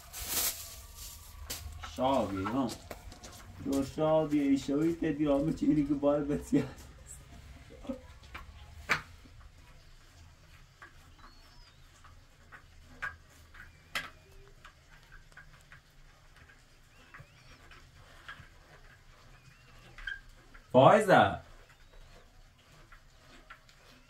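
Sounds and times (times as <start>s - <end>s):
faint high chirps: 19.2s - 20.3s.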